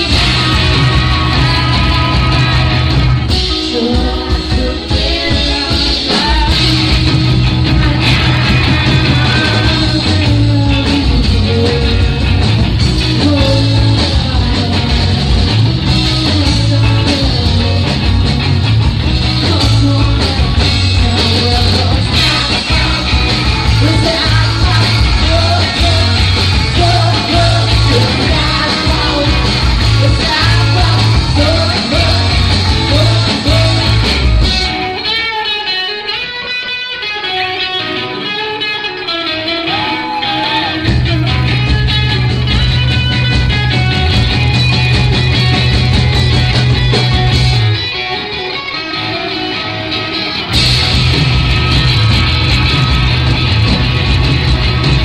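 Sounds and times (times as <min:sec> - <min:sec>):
person singing: 0:00.0 - 0:18.4, 0:19.2 - 0:35.8
electric guitar ringing: 0:00.0 - 0:55.0
rock band playing: 0:00.0 - 0:55.0.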